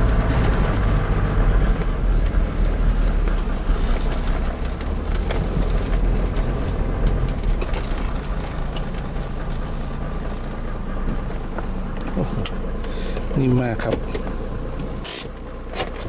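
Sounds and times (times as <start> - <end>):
engine and tyres rumbling: 0.0 - 16.0
interior clicks and rattles: 0.0 - 16.0.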